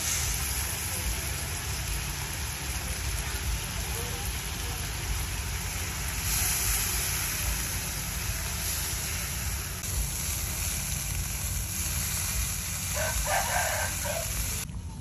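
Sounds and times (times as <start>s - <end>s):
sizzling in a wok: 0.0s - 14.7s
rooster crowing: 12.9s - 14.4s.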